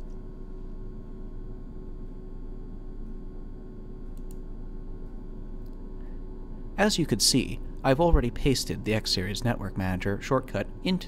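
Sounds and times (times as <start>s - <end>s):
electrical hum and hiss: 0.0s - 11.0s
faint clicks: 4.1s - 4.4s.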